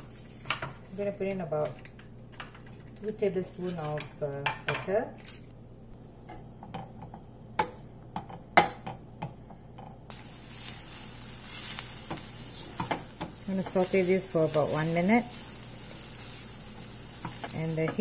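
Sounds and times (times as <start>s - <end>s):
butter and onions sizzling: 10.1s - 18.0s.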